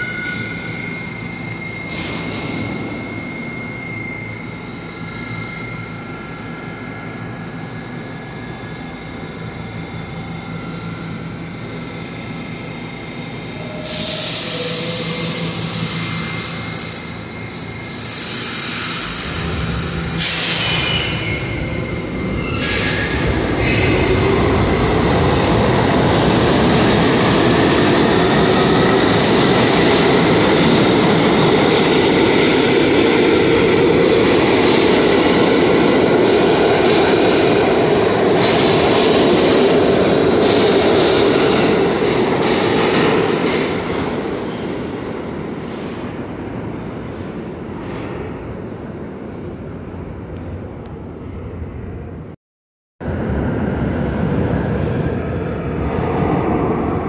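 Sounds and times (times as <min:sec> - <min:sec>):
train wheels rumbling on rails: 0:13.5 - 0:52.2.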